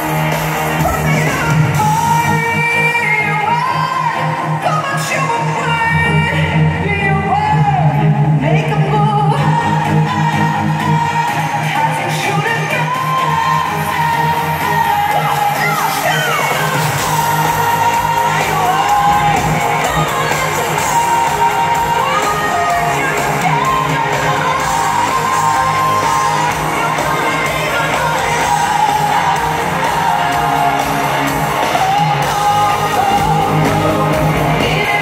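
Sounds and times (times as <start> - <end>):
live pop band with singing: 0.0 - 35.0
crowd shouting and whooping: 9.2 - 35.0.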